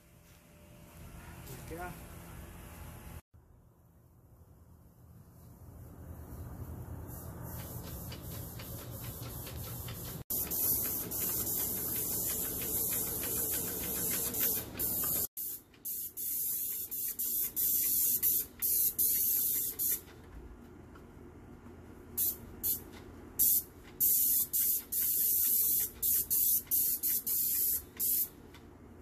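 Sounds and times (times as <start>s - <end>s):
paint spray gun hissing: 7.1s - 20.0s, 23.4s - 28.3s.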